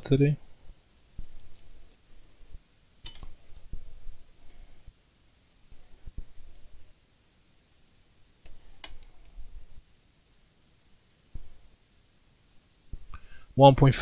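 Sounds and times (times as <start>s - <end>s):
small clicks and taps: 8.4s - 9.4s.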